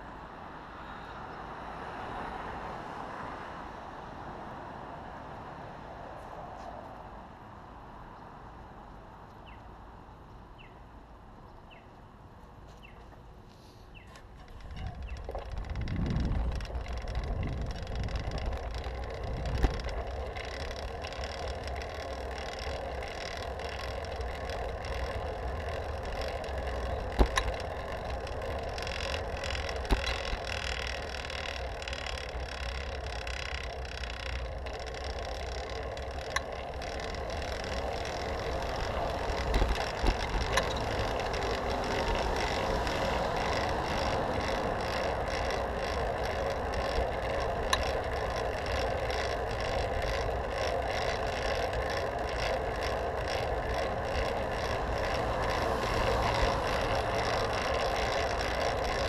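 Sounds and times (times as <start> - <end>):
bicycle tyre and drivetrain hum: 12.6 - 59.0
wind rush over microphone: 14.6 - 20.1.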